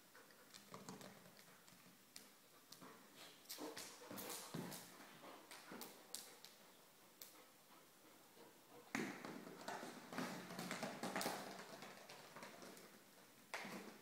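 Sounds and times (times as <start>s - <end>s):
dog claws scrabbling on tile: 0.4s - 2.9s, 9.2s - 14.0s.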